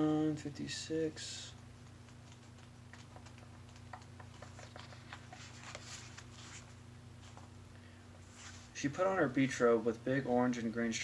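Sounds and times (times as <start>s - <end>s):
book pages being leafed through: 4.4s - 7.5s.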